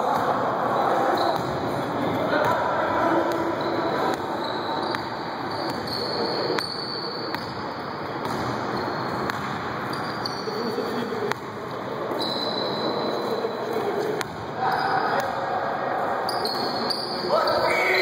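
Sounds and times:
basketball bouncing: 8.2 - 9.6
faint high squeak: 12.2 - 13.5.

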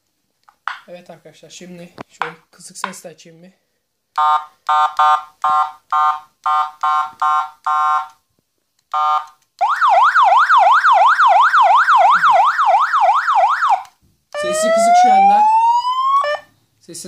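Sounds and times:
siren yelp: 9.0 - 16.5
siren horn blasts: 14.4 - 16.5.

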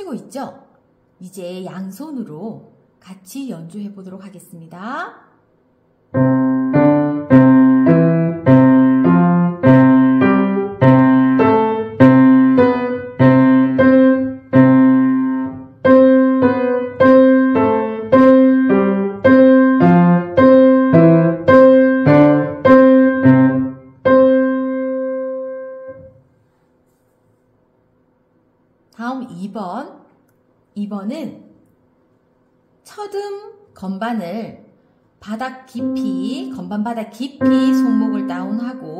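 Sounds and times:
piano exercise: 6.0 - 27.0, 35.3 - 38.9.

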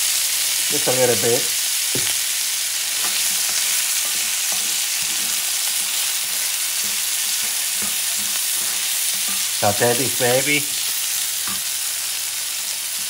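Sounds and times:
vegetables sizzling in oil: 0.0 - 13.0
wooden spoon scraping a pan: 2.9 - 11.7.

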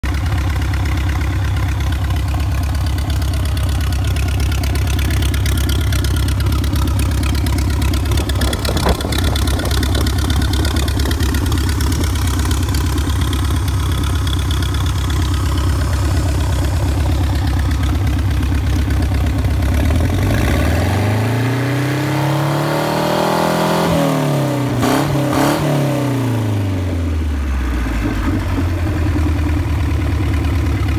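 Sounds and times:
boat engine idling and revving: 0.0 - 30.9.

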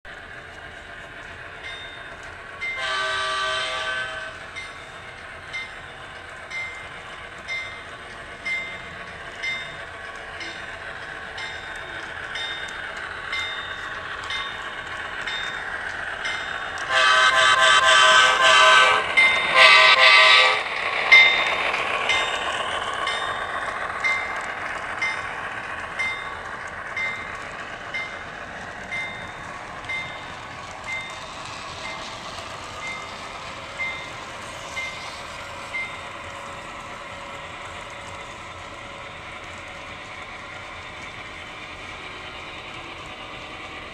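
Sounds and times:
diesel locomotive rumble: 0.0 - 43.9
light clicks of train running: 0.1 - 43.9
train horn blasts: 2.8 - 4.4, 16.9 - 20.6.

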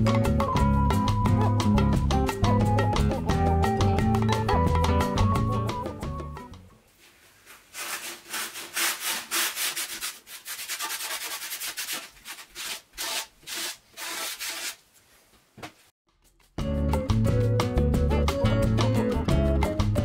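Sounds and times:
hand scraping metal: 7.5 - 14.9.

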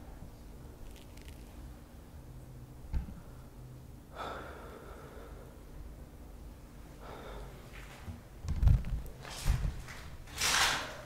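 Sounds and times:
person breathing: 3.2 - 5.7, 6.9 - 8.0.

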